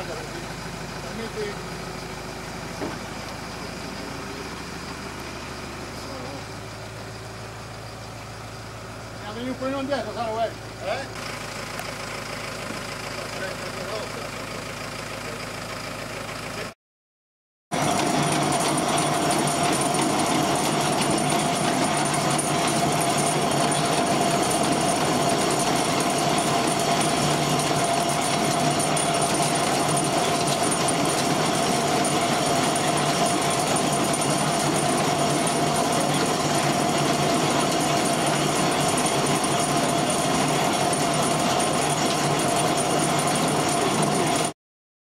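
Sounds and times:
constant machine hum: 0.0s - 11.9s, 17.8s - 44.5s
vibrating machine rattle: 17.7s - 44.6s.

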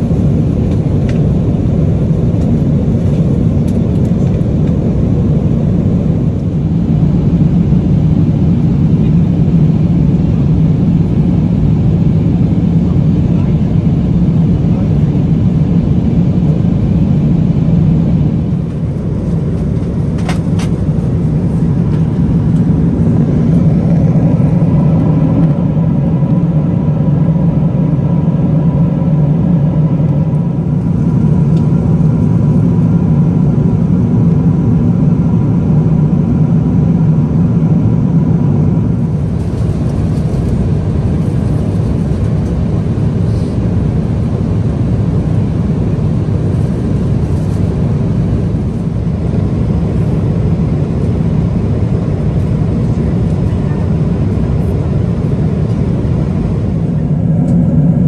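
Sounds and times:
airplane cabin engine roar: 0.0s - 58.0s
airflow past fuselage: 14.7s - 51.5s, 54.1s - 58.0s.

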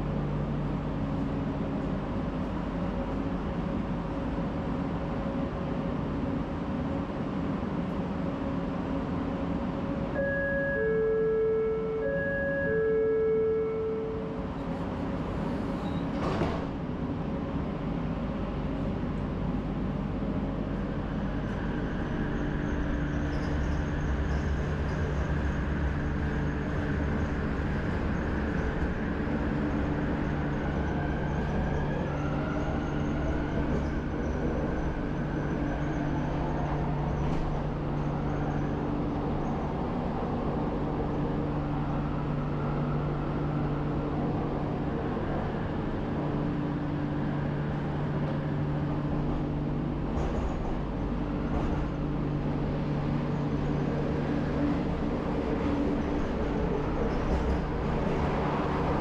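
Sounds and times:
train running hum and rumble: 0.0s - 59.0s
faint whine shifting in pitch: 10.0s - 15.2s.

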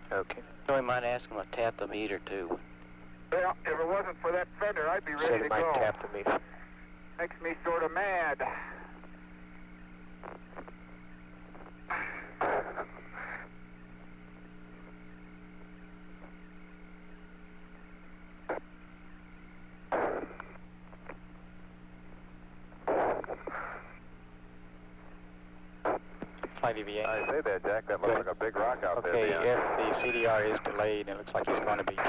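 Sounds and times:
radio hum and hiss: 0.0s - 32.0s
static bursts: 0.0s - 32.0s
radio click: 9.0s - 16.4s, 18.5s - 18.7s, 19.8s - 21.4s, 22.1s - 23.8s, 25.0s - 28.4s, 29.0s - 32.0s.

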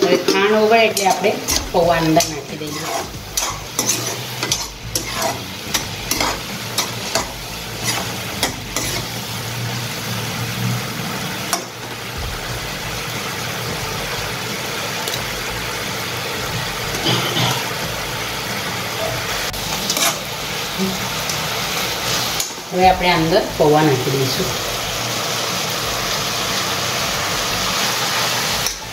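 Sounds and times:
metal spatula scraping and stirring: 0.0s - 9.3s, 19.4s - 21.4s
sizzling and bubbling: 0.0s - 28.9s.

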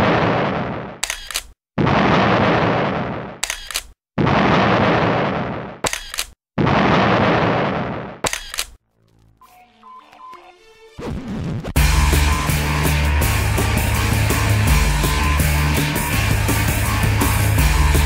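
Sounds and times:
sharp metallic clicks: 1.0s - 1.6s, 3.4s - 4.0s, 5.8s - 6.4s, 8.2s - 8.8s.

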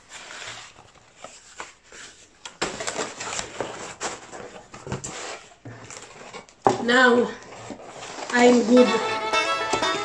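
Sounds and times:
cardboard boxes scraping and rustling: 0.0s - 6.6s, 7.4s - 8.9s.

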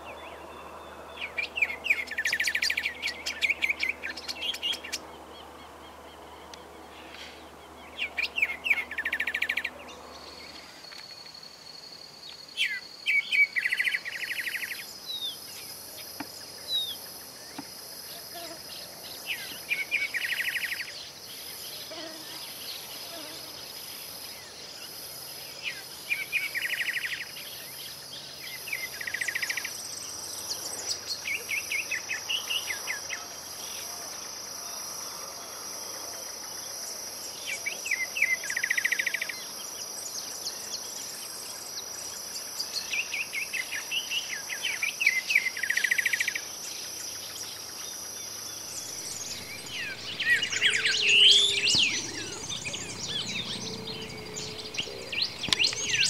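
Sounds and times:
high insect drone: 13.6s - 56.0s
bird singing quick notes: 48.8s - 56.0s.

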